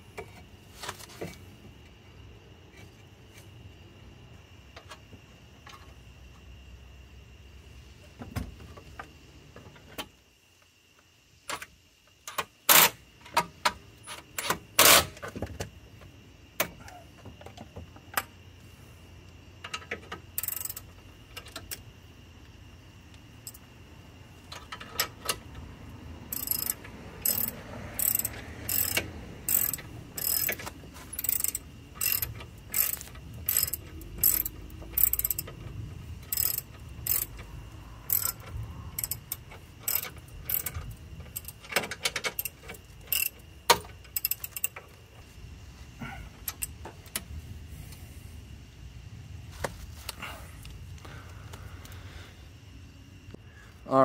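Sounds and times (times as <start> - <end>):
socket ratchet clicking: 20.3 - 21.8, 26.3 - 35.6, 36.2 - 44.8.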